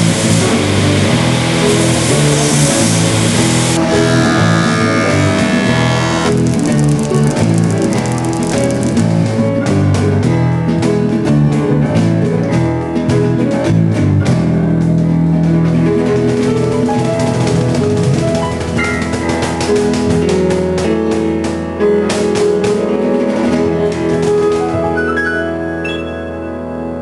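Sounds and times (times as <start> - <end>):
acoustic band music: 0.0 - 27.0
cajon beat: 0.2 - 10.6, 15.3 - 24.9.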